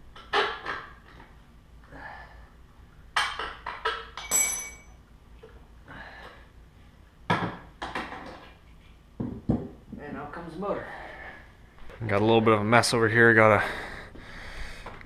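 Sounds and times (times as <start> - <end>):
metal knocks and clinks: 4.2 - 5.0
ringing metallic clank: 4.2 - 5.0.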